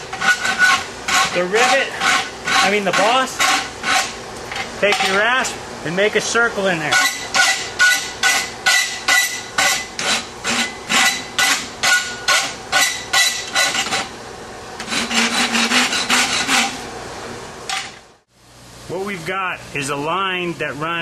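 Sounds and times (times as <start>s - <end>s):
hand rasp filing steel: 0.1s - 4.2s, 7.0s - 14.1s, 14.8s - 16.8s.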